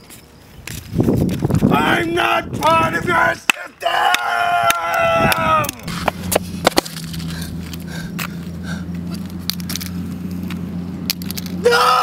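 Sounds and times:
steady low hum: 5.4s - 11.7s
broken pieces clicking: 9.4s - 11.6s.

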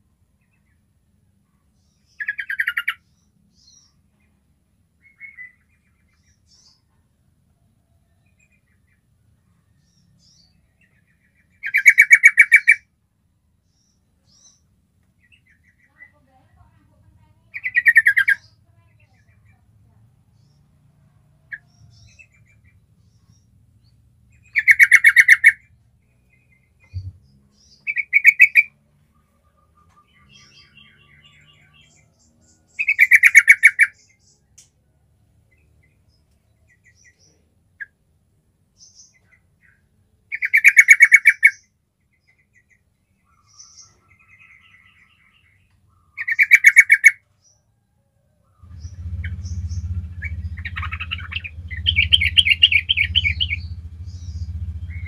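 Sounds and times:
bird singing chattering phrases: 2.0s - 3.0s, 11.5s - 12.8s, 15.2s - 20.6s, 24.4s - 25.7s, 26.3s - 28.7s, 29.6s - 34.4s, 38.8s - 41.7s, 42.6s - 47.2s, 48.6s - 55.0s.

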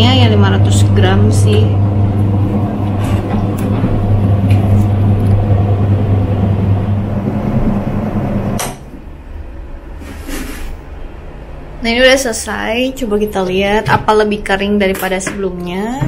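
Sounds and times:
spin-dryer motor humming: 0.0s - 9.1s.

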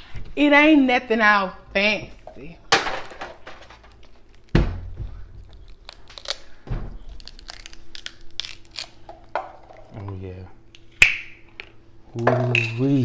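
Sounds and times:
crab shells cracking and crunching: 3.9s - 4.6s, 5.4s - 6.5s, 7.1s - 9.1s
dull thumps: 4.5s - 5.3s.

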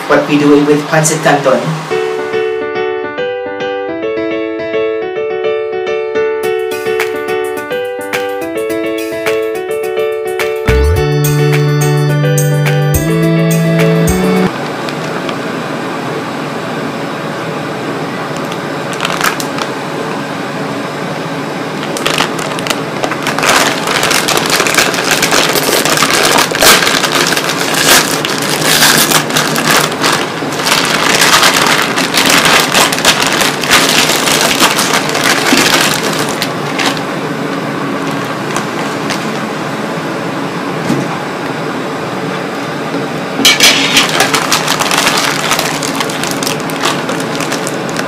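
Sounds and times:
plastic packet crinkling: 18.4s - 19.8s, 21.8s - 37.1s, 38.0s - 39.4s, 43.4s - 48.0s.

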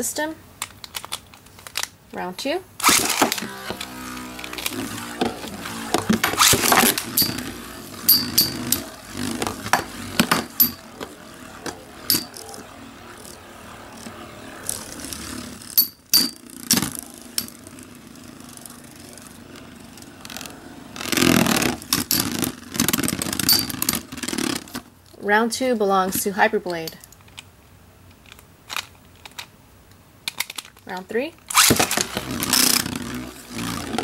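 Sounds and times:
spinning tops clacking: 2.8s - 24.8s
spinning tops grinding together: 2.8s - 24.9s, 31.5s - 34.0s
spinning tops whirring: 2.8s - 24.9s, 31.4s - 34.0s.

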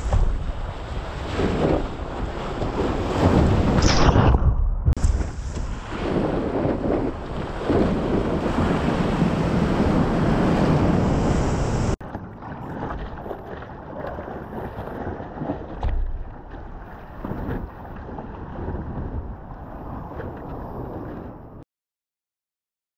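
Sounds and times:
wind buffeting microphone: 0.0s - 12.0s
surf water rushing: 5.0s - 21.3s.

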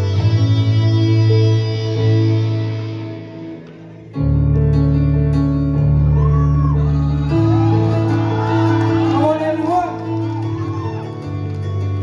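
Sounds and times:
guitar-led band music: 0.0s - 12.0s.

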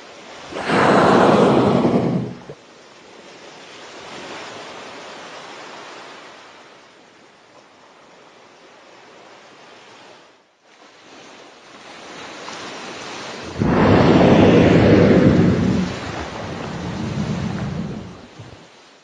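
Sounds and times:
sea: 0.0s - 19.0s
whale blowing: 0.5s - 2.6s, 13.5s - 18.6s.

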